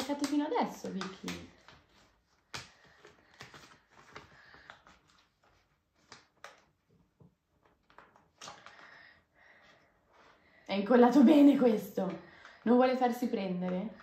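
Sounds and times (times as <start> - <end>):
paper sticker sheet rustling: 0.0 - 8.8.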